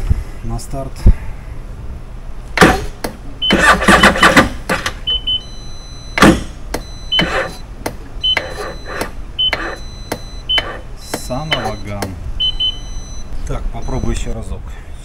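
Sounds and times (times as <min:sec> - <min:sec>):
electric starter cranking engine: 0:02.8 - 0:05.0
short high electronic beeps: 0:05.1 - 0:14.2.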